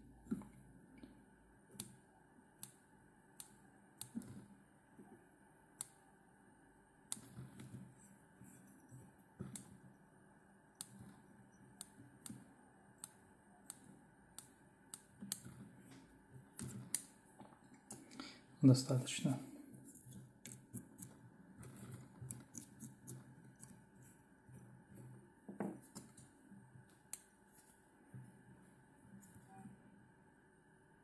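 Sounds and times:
small scissors snipping: 0:14.4 - 0:15.6, 0:21.7 - 0:23.8.

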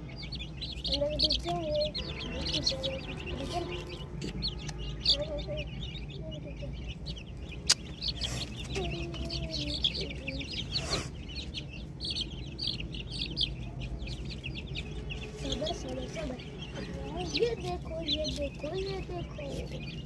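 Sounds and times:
chicks peeping: 0:00.0 - 0:20.0.

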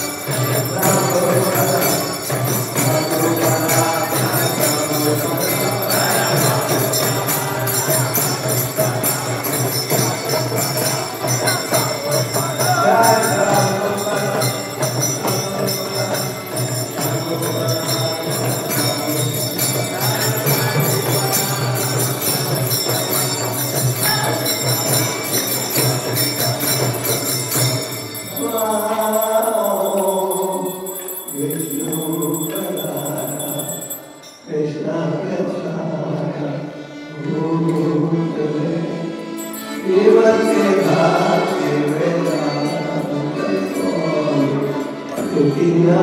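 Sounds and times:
voices chanting: 0:00.0 - 0:34.0, 0:37.3 - 0:46.0
hand cymbals ringing: 0:00.0 - 0:34.6, 0:39.0 - 0:46.0
accordion: 0:36.4 - 0:46.0.

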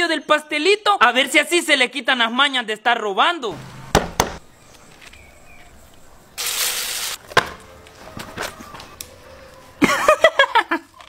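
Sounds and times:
young man laughing loudly: 0:09.8 - 0:10.9.

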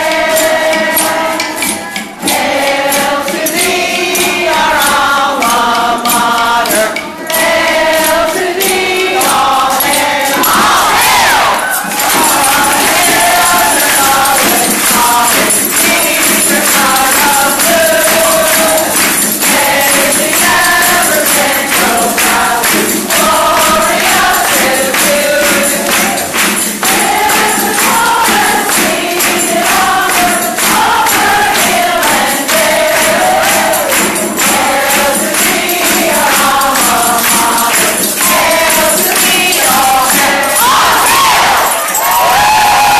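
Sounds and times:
group singing in unison: 0:00.0 - 0:42.9
hand drums and percussion: 0:00.0 - 0:42.9
people clapping along: 0:00.0 - 0:42.9
strummed ukuleles: 0:00.0 - 0:42.9.

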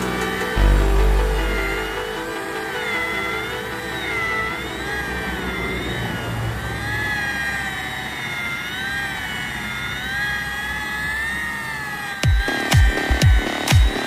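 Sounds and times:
dance music beat: 0:00.0 - 0:04.5, 0:12.2 - 0:14.0
rotary polisher motor whine: 0:00.0 - 0:14.0.

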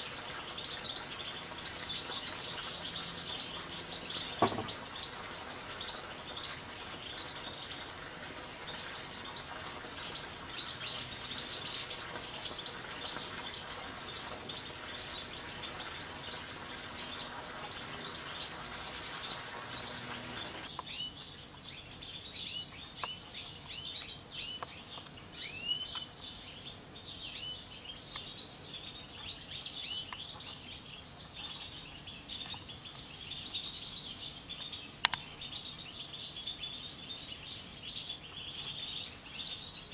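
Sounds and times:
finches twittering and chirping: 0:00.0 - 0:39.9.

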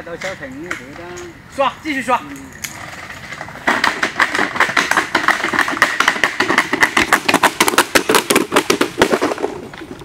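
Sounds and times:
scooter rattling down asphalt: 0:02.7 - 0:10.0.

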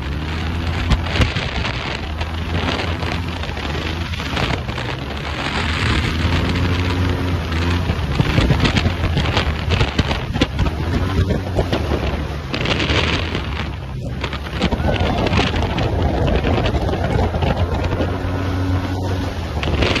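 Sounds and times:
motorbike engine drone: 0:00.0 - 0:20.0
wind buffeting microphone: 0:00.0 - 0:20.0.

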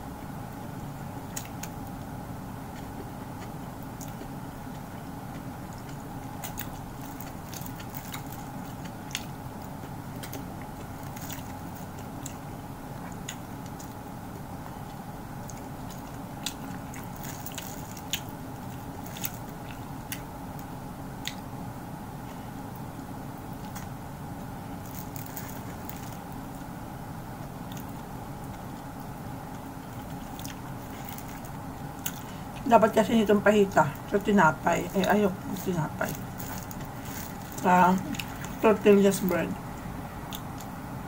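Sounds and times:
steady background hum: 0:00.0 - 0:41.0
person chewing: 0:01.2 - 0:02.0, 0:02.7 - 0:21.5, 0:24.8 - 0:26.4, 0:27.4 - 0:32.7, 0:34.9 - 0:38.6, 0:39.8 - 0:40.8.

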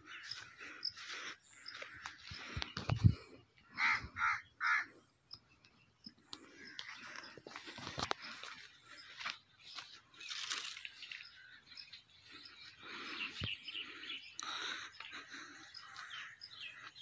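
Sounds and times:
small birds chirping: 0:00.0 - 0:17.0
rustling and crunching: 0:07.1 - 0:11.5.

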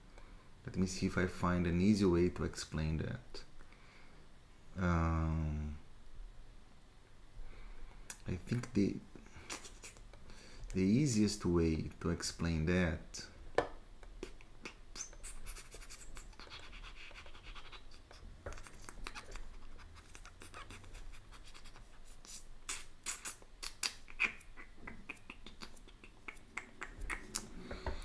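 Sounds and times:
low steady hum: 0:00.0 - 0:28.0
faint small clicks and scratches: 0:14.1 - 0:24.4.

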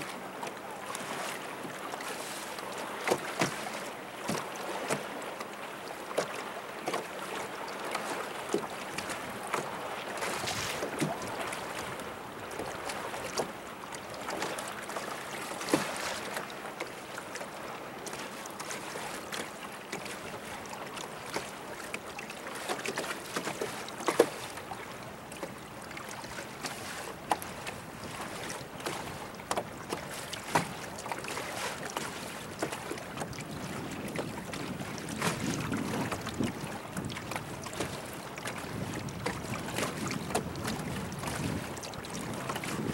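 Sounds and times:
rushing water: 0:00.0 - 0:42.9
water slapping boat hull: 0:00.0 - 0:42.9
wind: 0:00.0 - 0:42.9
sharp water splashes: 0:02.1 - 0:05.1, 0:10.2 - 0:11.8.

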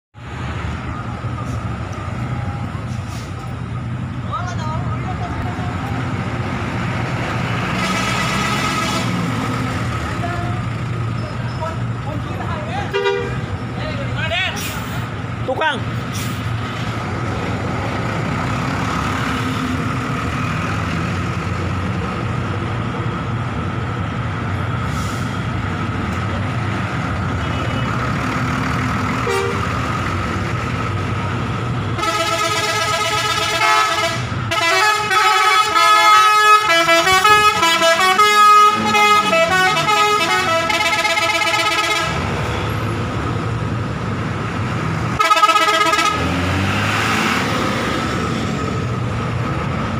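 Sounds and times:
bus engines rumbling: 0:00.2 - 0:49.9
multi-tone musical bus horn: 0:07.8 - 0:09.2, 0:12.9 - 0:13.6, 0:29.2 - 0:29.8, 0:31.9 - 0:42.2, 0:45.2 - 0:46.4.

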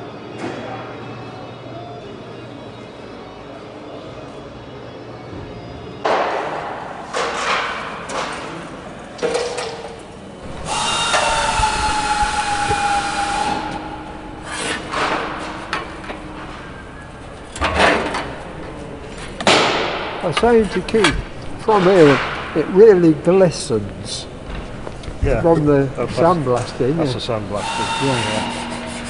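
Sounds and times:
metal scraping squeal: 0:10.4 - 0:17.6, 0:27.3 - 0:29.0.

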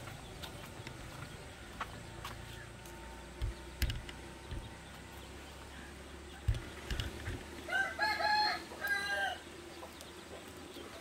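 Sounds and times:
footsteps on concrete: 0:00.0 - 0:03.0.

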